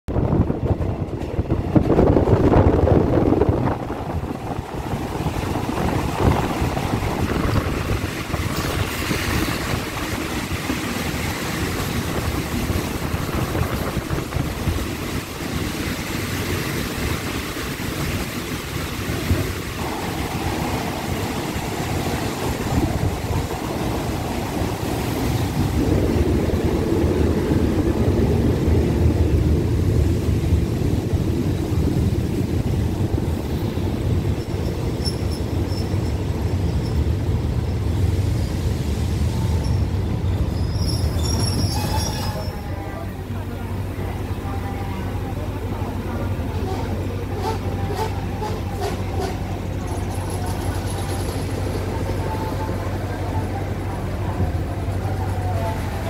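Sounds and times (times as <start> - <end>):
train rumbling: 0.0 - 56.0
wind on microphone: 0.1 - 16.0, 19.1 - 35.6.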